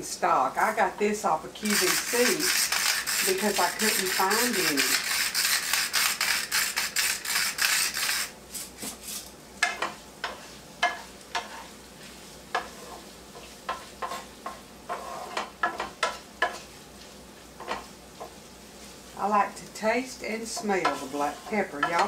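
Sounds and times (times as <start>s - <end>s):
faint sizzle: 0.0s - 22.0s
wooden spoon scraping a pan: 0.6s - 22.0s
pepper mill grinding: 1.6s - 9.2s.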